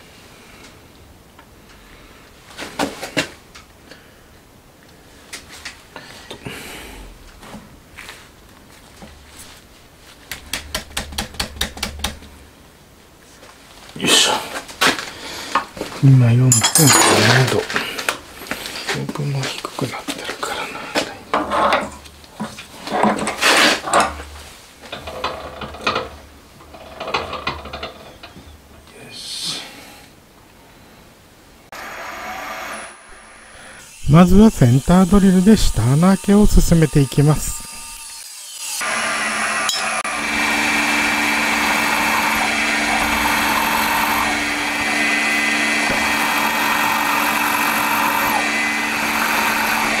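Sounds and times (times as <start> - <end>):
metal parts clinking and tapping: 16.5 - 17.5
short scrape: 23.4 - 23.9.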